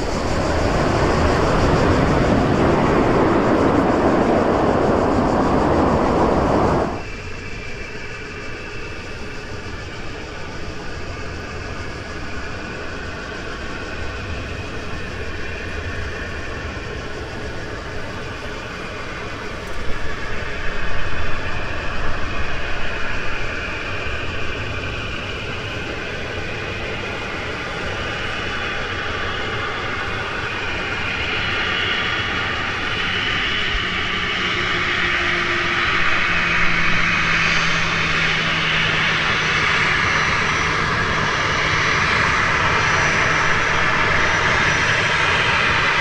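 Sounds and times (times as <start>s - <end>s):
jet engine whine: 0.0s - 46.0s
jet engines roaring: 0.0s - 46.0s.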